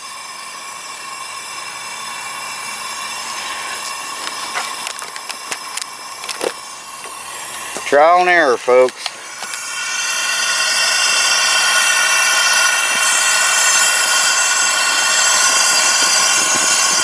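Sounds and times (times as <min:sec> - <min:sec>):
propane burner hissing and whistling: 0:00.0 - 0:17.0.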